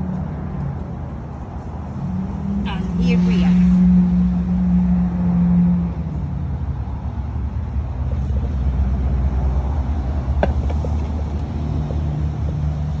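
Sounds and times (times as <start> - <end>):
low motor rumble and hum: 0.0 - 13.0
plant pot knocking on tray: 10.4 - 11.2.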